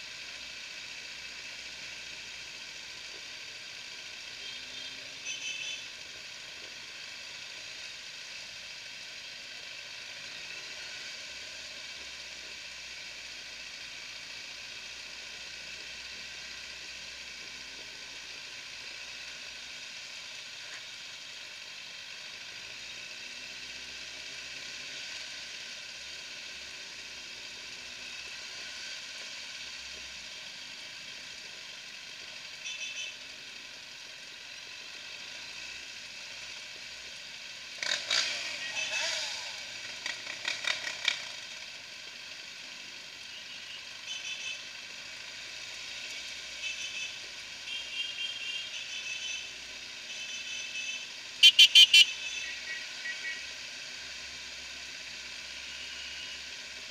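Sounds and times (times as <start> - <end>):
faint motorcycle engines: 0.0 - 56.9
high-pitched beep: 51.4 - 52.5.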